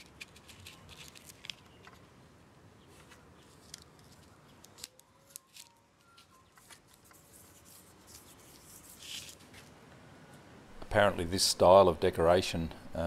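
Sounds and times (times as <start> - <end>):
vinyl film crackling and rustling: 0.0 - 2.1, 2.9 - 9.8.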